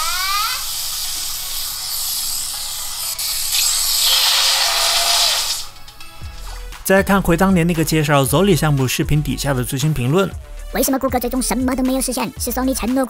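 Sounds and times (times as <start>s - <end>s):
loud high-pitched hiss: 0.0s - 5.7s.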